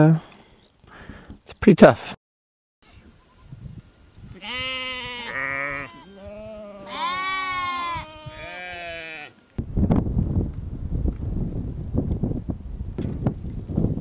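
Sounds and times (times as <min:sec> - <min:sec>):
wind buffeting the microphone: 0:03.0 - 0:06.6, 0:07.3 - 0:08.8, 0:09.6 - 0:14.0
sheep and goats bleating: 0:04.3 - 0:09.4.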